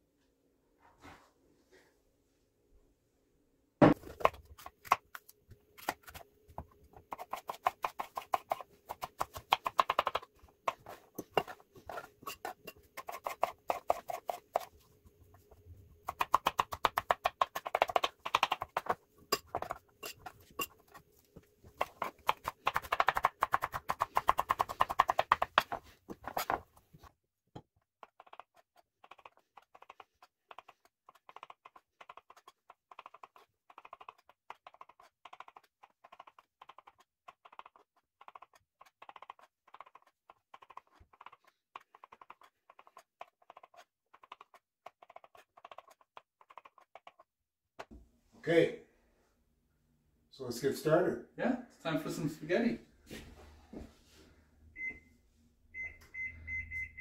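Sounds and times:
knife chopping on plastic board: 5.8 - 14.7, 16.0 - 20.6, 21.7 - 26.6.

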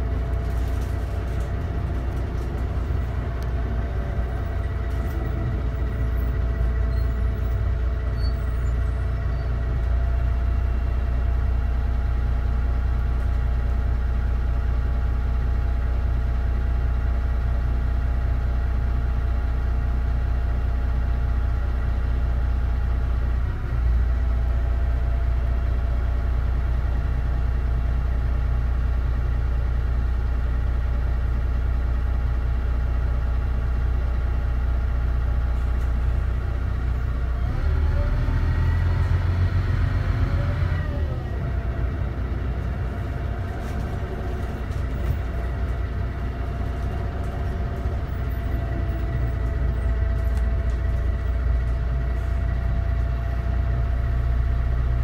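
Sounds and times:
bus engine running with whine: 0.0 - 55.0.

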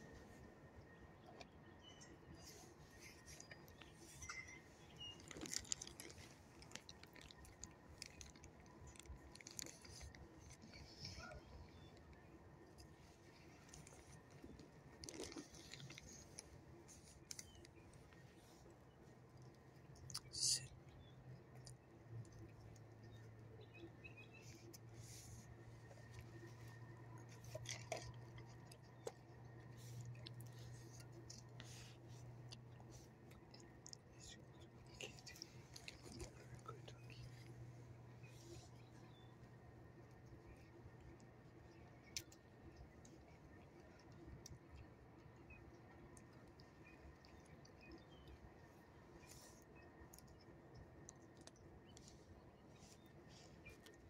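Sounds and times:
faint low hum: 0.0 - 54.0
soft clicks and ticks: 0.1 - 54.0
dog crunching a treat: 5.0 - 11.4, 12.6 - 17.7, 25.9 - 37.5.

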